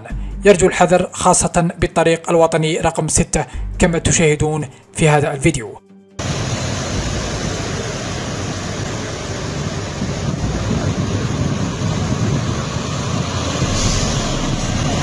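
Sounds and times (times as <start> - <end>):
truck diesel engines running: 6.2 - 15.0.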